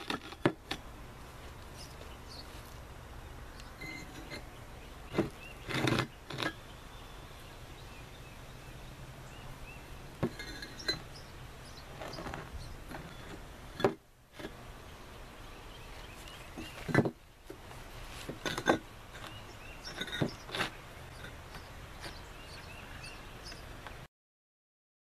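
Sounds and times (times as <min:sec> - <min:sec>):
bricks clinking and knocking: 0:00.0 - 0:00.8, 0:03.8 - 0:04.5, 0:05.1 - 0:06.6, 0:10.2 - 0:11.1, 0:11.9 - 0:14.6, 0:16.6 - 0:17.2, 0:18.2 - 0:22.2.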